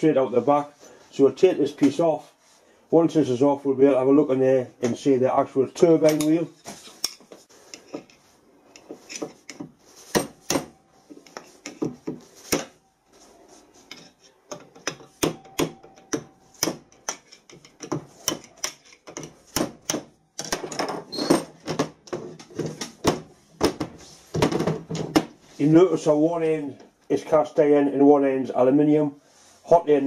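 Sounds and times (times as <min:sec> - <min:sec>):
metal clatter and rubbing: 0:06.1 - 0:16.0, 0:16.8 - 0:19.6.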